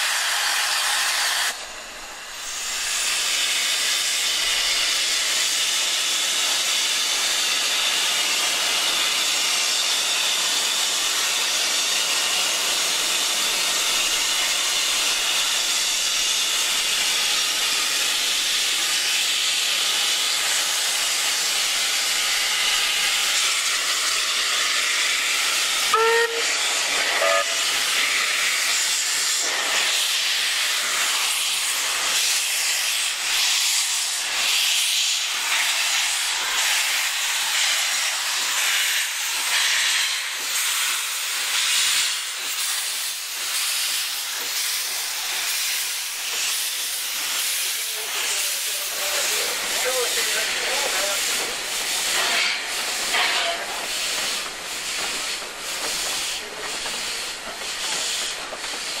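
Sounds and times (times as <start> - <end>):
steam hissing: 0.0 - 59.0
steam whistle toots: 25.8 - 27.9.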